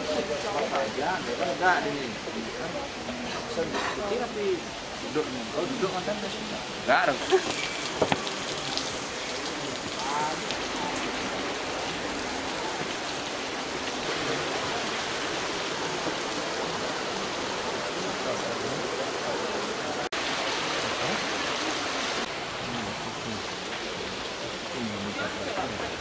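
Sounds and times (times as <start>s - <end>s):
stream water flowing over rocks: 0.0s - 26.0s.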